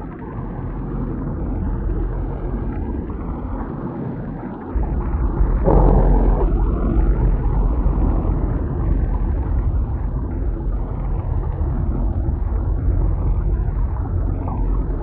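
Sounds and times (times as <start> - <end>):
low thunder rumble: 4.7 - 15.0.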